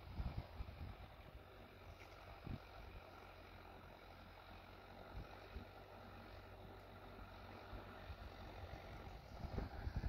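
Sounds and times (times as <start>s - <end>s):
distant tractor engine running: 0.0s - 10.0s
wind thumps on microphone: 9.4s - 10.0s.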